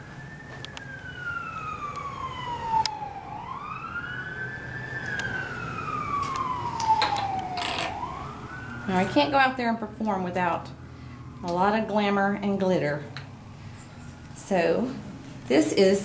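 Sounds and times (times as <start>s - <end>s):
siren wailing: 0.0s - 15.0s.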